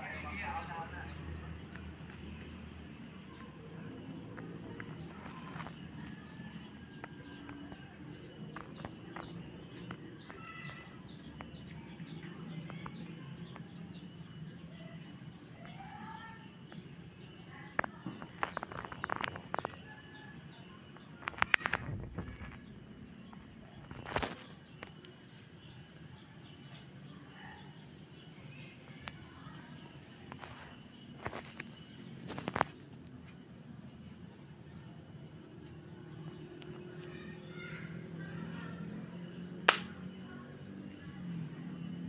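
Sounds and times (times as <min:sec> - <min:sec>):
small birds chirping: 0:00.0 - 0:42.0.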